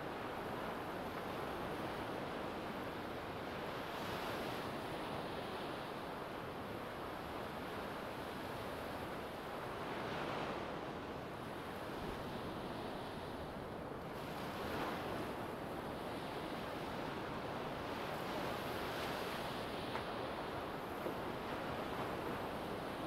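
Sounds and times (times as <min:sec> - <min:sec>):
small waves washing up beach: 0:06.5 - 0:23.0.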